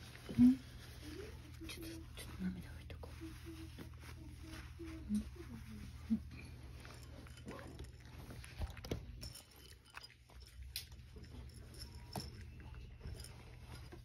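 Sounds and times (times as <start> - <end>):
low steady hum: 0.0 - 14.0
cat crunching dry food: 6.4 - 14.0.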